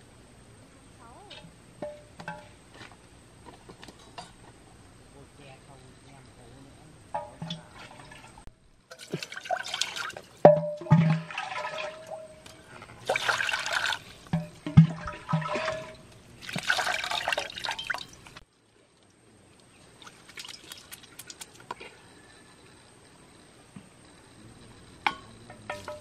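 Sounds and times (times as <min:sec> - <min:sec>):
water splashing and pouring: 0:07.7 - 0:18.4, 0:20.0 - 0:21.7.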